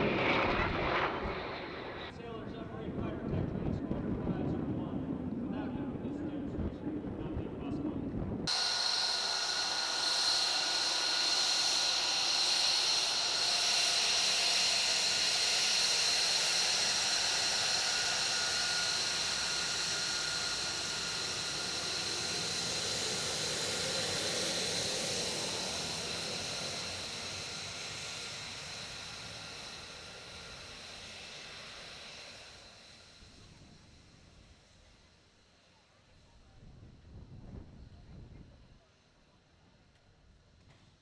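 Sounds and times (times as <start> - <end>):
jet turbine whine: 0.0 - 39.9
jet engine rushing hiss: 8.3 - 35.7.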